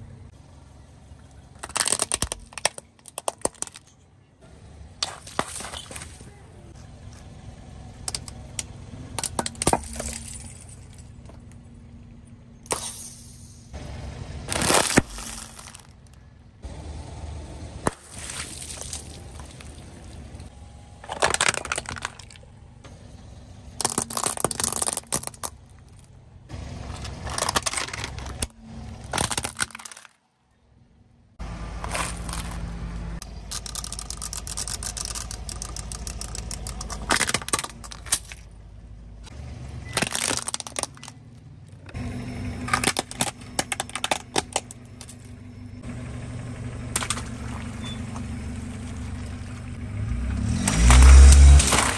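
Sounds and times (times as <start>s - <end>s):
car engine humming: 0.0s - 51.9s
plastic and foil crunching under tyre: 1.4s - 4.0s, 5.0s - 7.2s, 14.5s - 16.3s, 17.9s - 22.5s, 23.8s - 26.1s, 26.8s - 30.3s, 31.8s - 38.5s, 39.8s - 42.0s, 42.7s - 45.4s, 50.5s - 51.9s.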